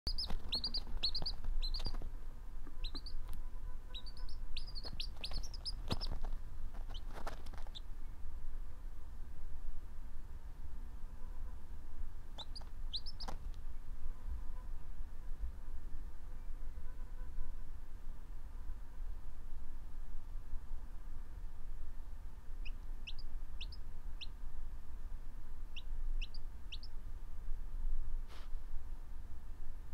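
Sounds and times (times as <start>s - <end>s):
chick peeping: 0.1s - 7.9s, 12.4s - 13.5s, 22.6s - 24.4s, 25.7s - 27.0s.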